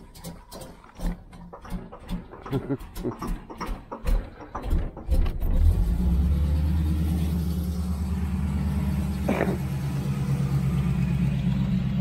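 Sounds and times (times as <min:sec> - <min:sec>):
car engine starting and idling: 0:00.0 - 0:12.0.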